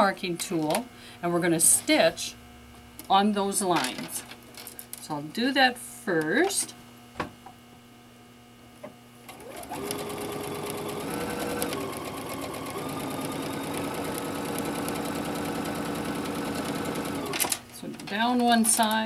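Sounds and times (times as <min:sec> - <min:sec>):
sewing machine stitching: 0:09.3 - 0:18.4.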